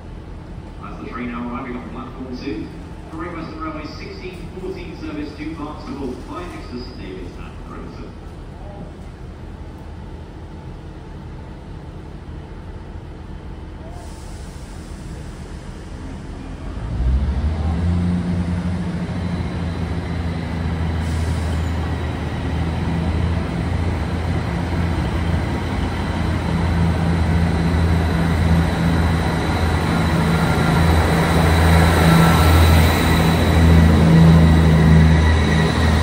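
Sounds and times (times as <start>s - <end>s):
diesel train engines droning: 0.0s - 36.0s.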